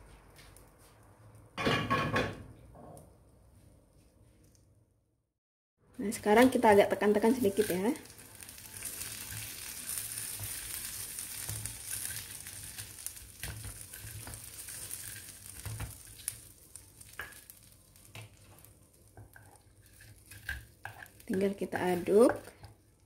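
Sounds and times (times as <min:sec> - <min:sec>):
oil sizzling: 0:06.0 - 0:23.0.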